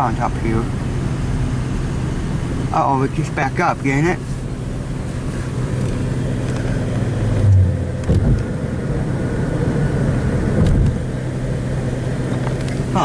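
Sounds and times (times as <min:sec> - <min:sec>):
car engine and tyres rumbling: 0:00.0 - 0:13.0
low thumps: 0:07.2 - 0:08.6.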